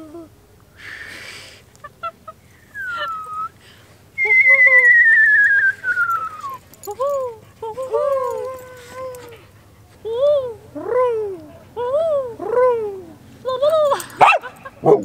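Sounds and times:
huskies whining: 1.7s - 10.0s
high wavering whistle: 2.6s - 3.6s, 4.2s - 6.6s.

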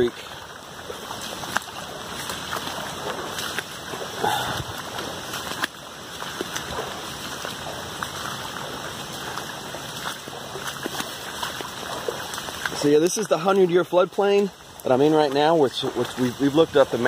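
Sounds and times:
loud splash: 0.0s - 13.4s
footsteps splashing through water: 0.0s - 17.0s
heavy rain falling: 0.7s - 17.0s.

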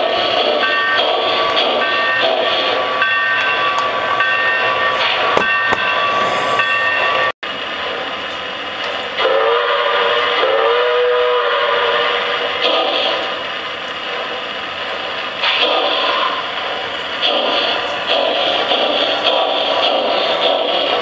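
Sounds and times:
train whistle blasts: 9.2s - 13.3s.

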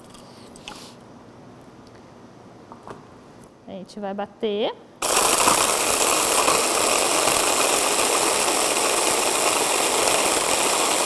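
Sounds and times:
electric blender grinding: 5.0s - 11.0s.

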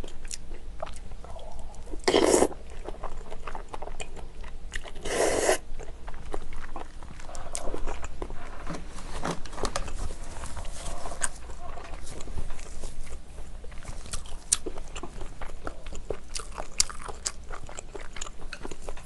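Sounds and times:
wet chewing: 0.0s - 19.0s
slurping: 5.0s - 5.6s.

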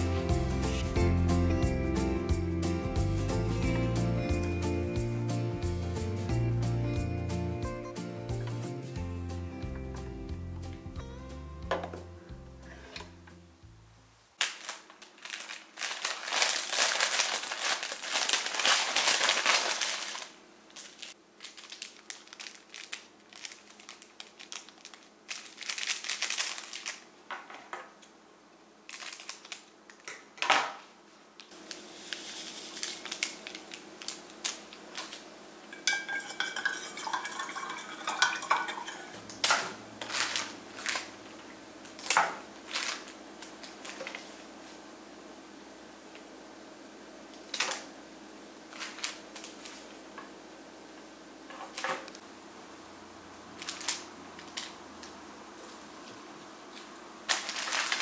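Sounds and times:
plastic wrapping rustling: 14.4s - 27.1s, 28.9s - 30.1s, 31.4s - 44.8s, 48.7s - 50.0s, 53.6s - 55.8s, 56.7s - 58.0s.

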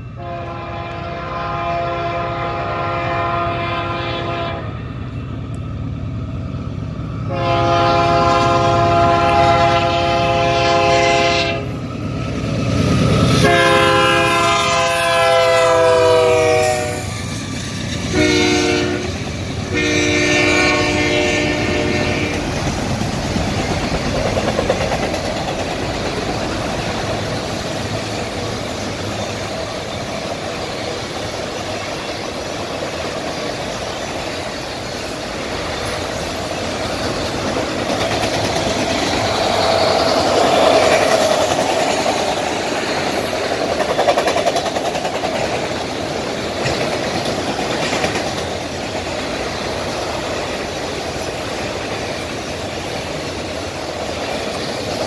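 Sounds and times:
locomotive engine rumbling: 0.0s - 55.0s
rail cars rolling by: 0.0s - 55.0s
train horn blasts: 0.1s - 4.9s, 7.3s - 11.8s, 13.4s - 17.2s, 18.1s - 22.5s.

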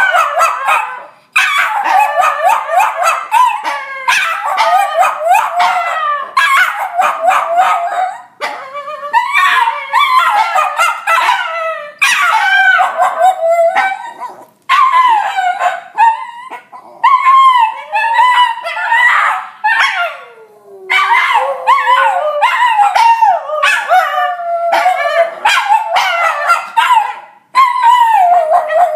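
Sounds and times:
dogs howling: 0.0s - 28.9s.

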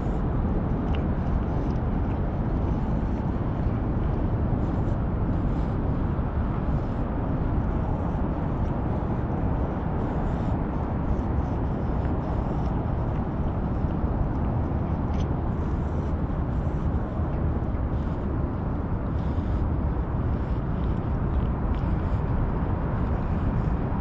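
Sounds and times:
cat chewing and licking food: 0.0s - 24.0s
wind buffeting the microphone: 0.0s - 24.0s.

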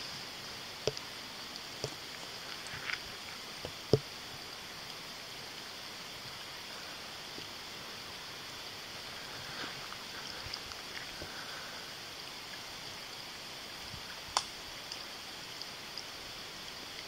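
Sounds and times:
faint crackles: 0.0s - 12.7s
night woods hiss: 0.0s - 17.0s.

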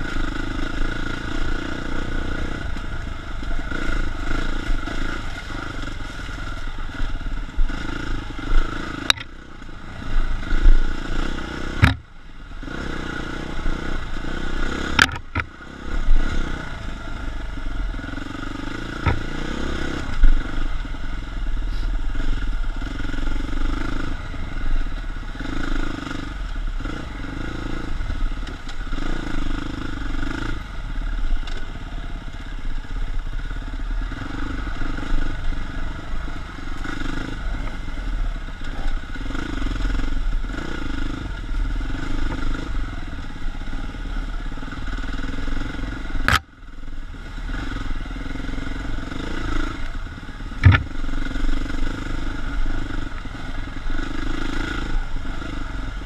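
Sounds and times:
dirt bike engine revving: 0.0s - 32.0s, 33.4s - 56.0s
sharp click: 15.0s - 15.5s.

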